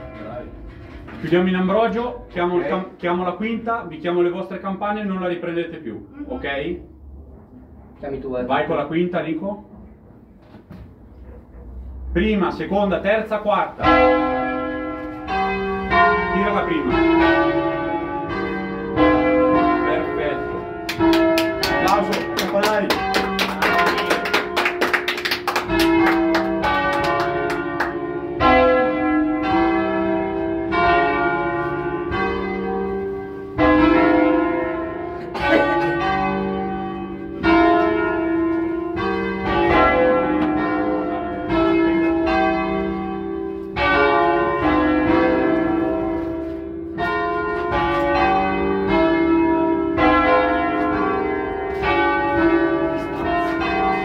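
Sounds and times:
church bells ringing: 0.0 - 5.9, 11.2 - 54.0
hand clapping: 20.9 - 28.0.

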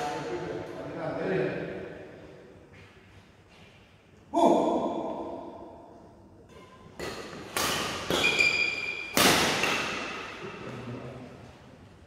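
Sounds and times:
racket hitting shuttlecock: 6.5 - 10.6
shoes squeaking on court floor: 8.0 - 9.1.

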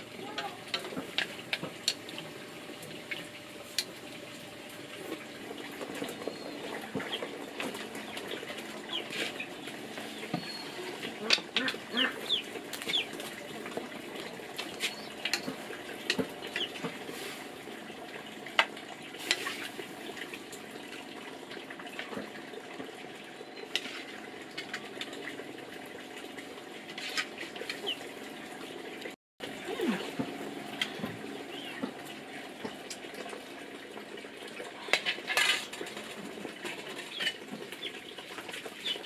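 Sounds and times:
chickens clucking: 5.5 - 17.0.

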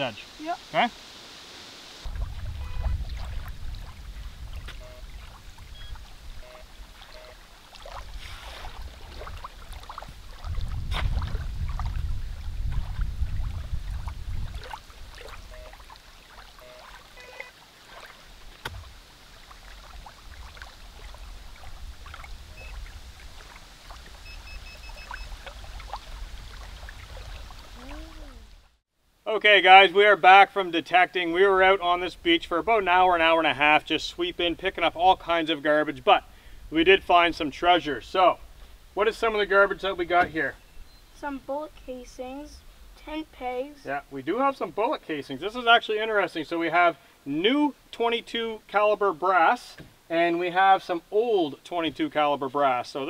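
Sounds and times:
small waves lapping on sand: 0.0 - 28.5
wind rumbling on microphone: 1.8 - 17.3, 18.2 - 28.7
faint short beeps: 2.6 - 3.0, 4.7 - 5.1, 5.7 - 7.4, 15.4 - 15.8, 16.6 - 17.5, 22.5 - 22.8, 24.2 - 25.3.

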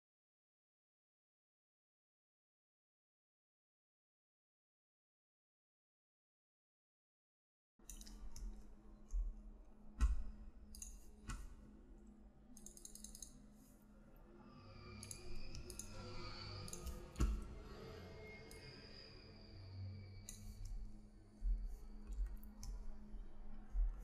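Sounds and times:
faint steady hum: 7.8 - 24.0
computer mouse clicking: 7.9 - 8.6, 10.0 - 11.5, 12.6 - 13.4, 15.0 - 17.4.

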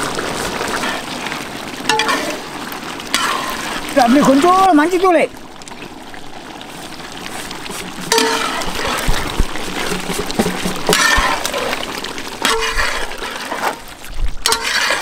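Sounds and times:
gravy sizzling and bubbling in pot: 0.0 - 15.0.

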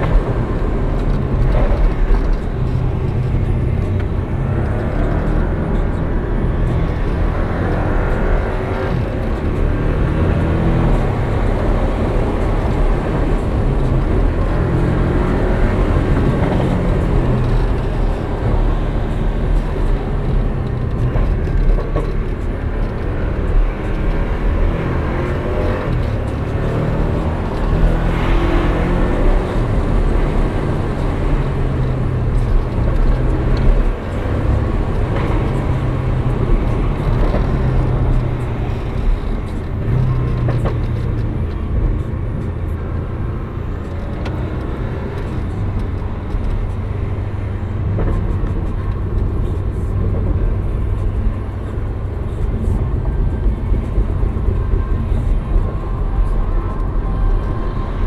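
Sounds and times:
car engine from inside cabin: 0.0 - 58.0
road rumble: 0.0 - 58.0.

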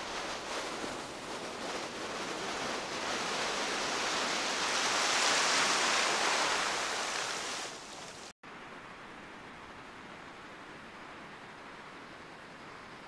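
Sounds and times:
waves washing over sand: 0.0 - 8.3
soft steady hiss: 0.0 - 13.0.

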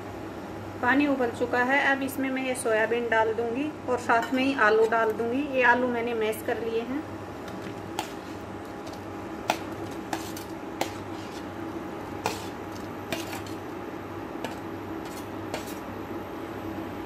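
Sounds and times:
metal spoon scraping steel bowl: 9.5 - 11.5, 12.2 - 13.6, 14.5 - 15.8.

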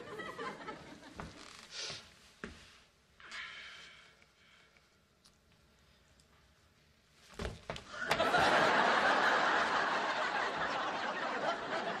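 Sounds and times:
studio audience laughing: 0.0 - 1.2, 7.9 - 12.0.

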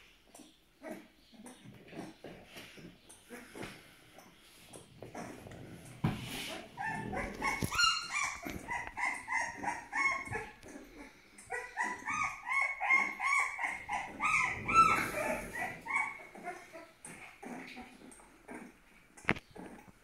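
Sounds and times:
puppy whining: 6.3 - 19.9.

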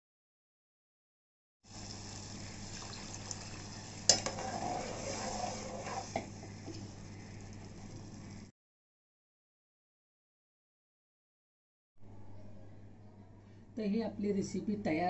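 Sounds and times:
steady low hum: 1.7 - 8.5
liquid stirring in a pot: 1.8 - 8.4
metal pot clink: 4.1 - 4.8.

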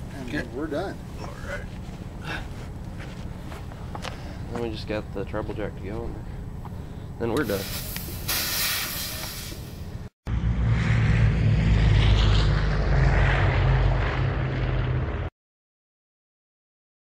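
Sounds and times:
hiss: 7.4 - 9.9
propeller aircraft engine running: 9.9 - 15.3.

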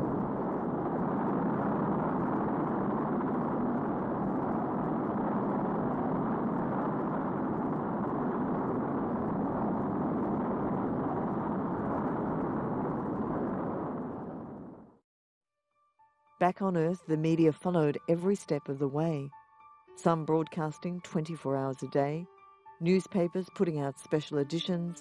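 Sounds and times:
rocket engines rumbling: 0.0 - 15.0.

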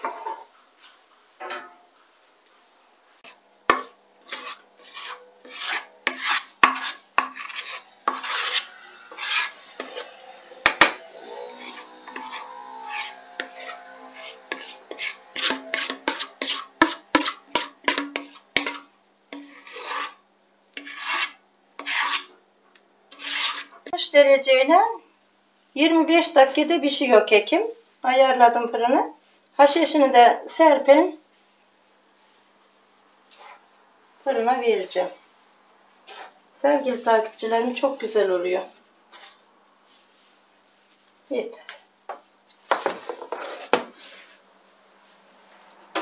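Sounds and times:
utensil scraping a bowl: 3.2 - 20.2, 20.8 - 22.3, 23.1 - 23.9, 36.0 - 40.0, 42.7 - 44.4.

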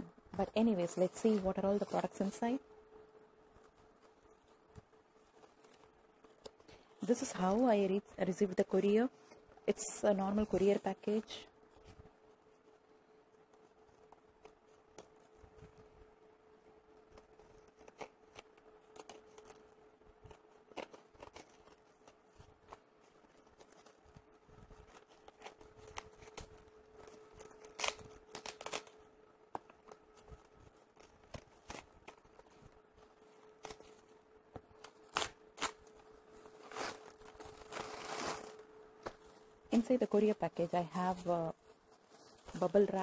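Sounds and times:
faint steady hum: 0.0 - 43.0
plastic mailer crinkling: 16.8 - 43.0
package tearing open: 24.9 - 29.1.

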